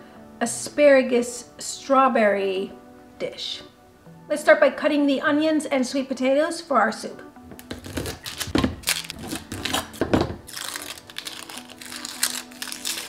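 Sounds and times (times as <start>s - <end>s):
background music: 0.0s - 13.0s
papery skins crinkling and tearing: 7.6s - 13.0s.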